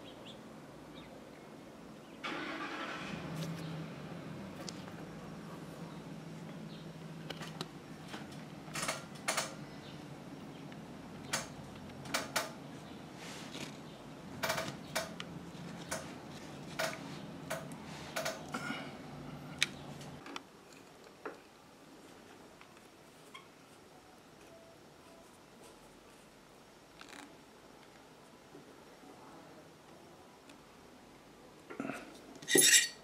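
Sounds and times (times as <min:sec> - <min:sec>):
steady low hum: 0:03.1 - 0:20.2.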